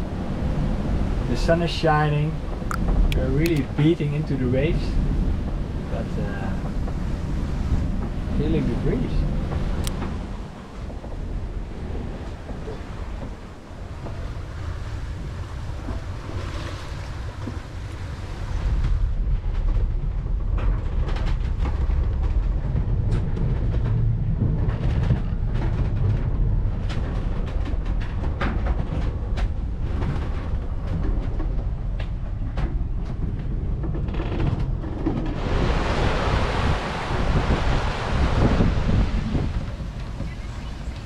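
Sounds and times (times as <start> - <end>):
rushing water: 0.0 - 19.3, 35.2 - 41.0
low rumble from boat hull: 0.0 - 41.0
wind: 0.0 - 41.0
hull knocks and clicks: 1.4 - 14.3, 18.6 - 35.5, 37.5 - 41.0.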